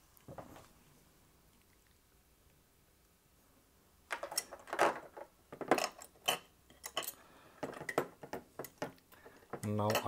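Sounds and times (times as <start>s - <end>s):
metal parts clicking and scraping: 4.1s - 10.0s.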